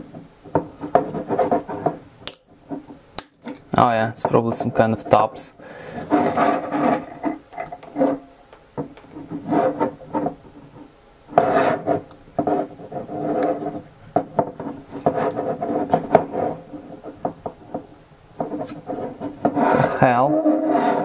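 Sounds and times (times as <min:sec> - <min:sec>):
screwdriver scraping plastic: 0:06.0 - 0:08.2, 0:09.0 - 0:13.9, 0:14.6 - 0:17.8, 0:18.4 - 0:21.0.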